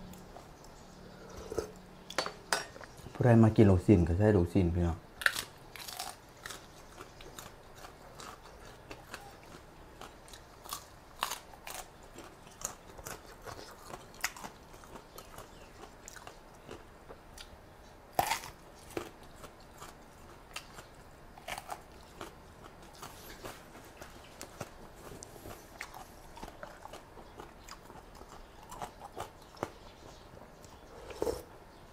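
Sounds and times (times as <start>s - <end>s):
chewing crunchy raw vegetables: 5.2s - 31.6s.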